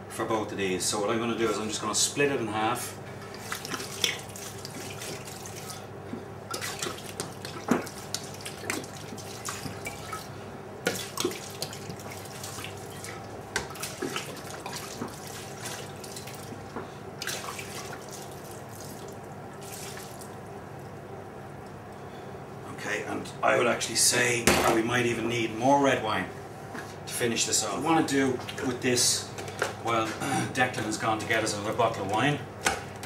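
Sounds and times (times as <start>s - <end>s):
small splashes and drips: 3.3s - 21.9s.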